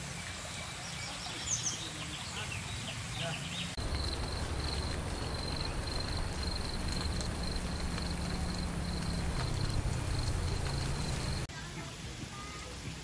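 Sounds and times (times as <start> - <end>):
high-pitched insect trill: 3.8 - 11.5
low steady rumble: 3.8 - 11.5.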